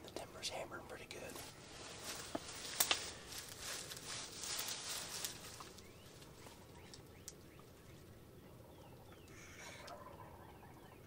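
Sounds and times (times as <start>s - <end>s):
rustling: 1.3s - 7.1s
faint bird chirps: 5.4s - 11.0s.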